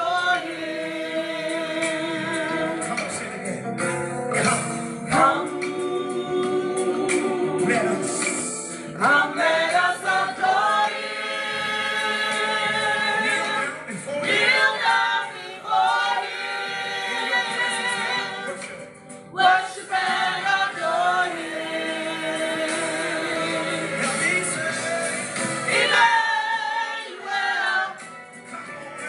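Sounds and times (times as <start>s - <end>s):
choir singing: 0.0s - 2.8s, 9.0s - 28.1s.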